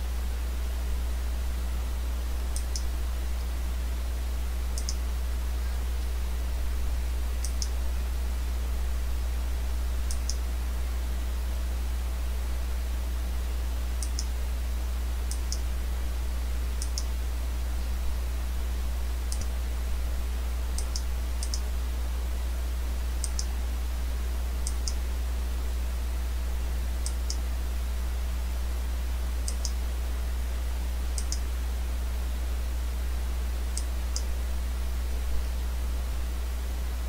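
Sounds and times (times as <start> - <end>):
low electrical hum: 0.0 - 37.0
computer mouse clicking: 2.5 - 2.9, 4.8 - 5.0, 7.4 - 7.8, 10.1 - 10.4, 14.0 - 14.3, 16.8 - 17.1, 19.3 - 19.5, 20.8 - 21.6, 23.2 - 23.5, 24.6 - 25.0, 27.0 - 27.4, 29.4 - 29.8, 31.2 - 31.5.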